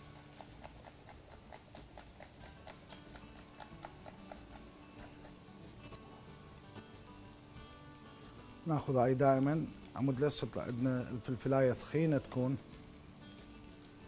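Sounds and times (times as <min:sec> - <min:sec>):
knife chopping on cutting board: 0:00.0 - 0:05.4.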